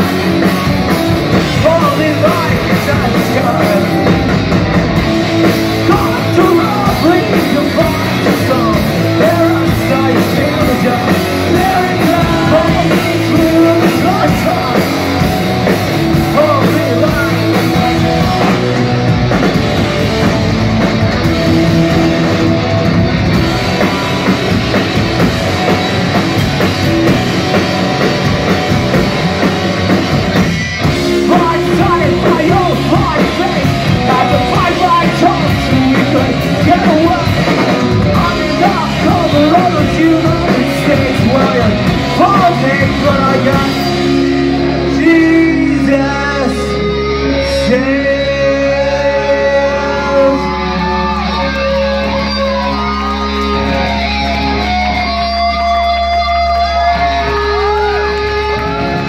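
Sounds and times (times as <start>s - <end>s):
bass guitar: 0.0s - 59.0s
distorted electric guitars: 0.0s - 59.0s
drum kit: 0.0s - 59.0s
person singing: 5.7s - 15.3s, 16.0s - 18.7s, 31.0s - 59.0s.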